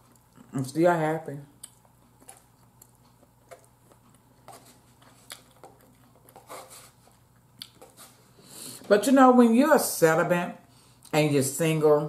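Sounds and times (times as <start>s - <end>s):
soft eating sounds: 0.0s - 0.7s, 1.4s - 8.9s.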